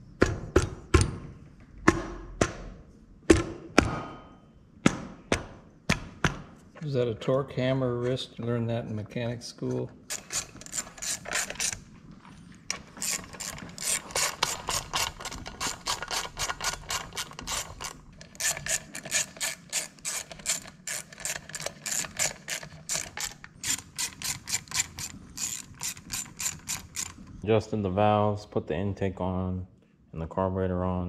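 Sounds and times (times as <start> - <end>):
socket ratchet clicking: 10.1 - 11.8, 12.7 - 27.2.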